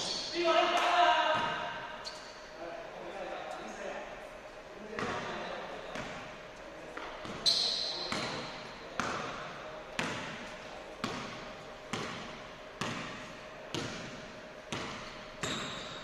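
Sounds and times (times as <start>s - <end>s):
basketball bouncing on wooden floor: 8.1s - 9.4s, 10.0s - 10.4s, 11.0s - 16.0s.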